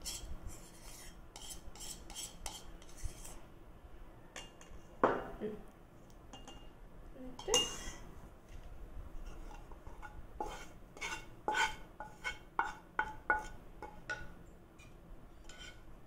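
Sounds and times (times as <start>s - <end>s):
spatula clinking on metal pan: 6.3s - 6.7s.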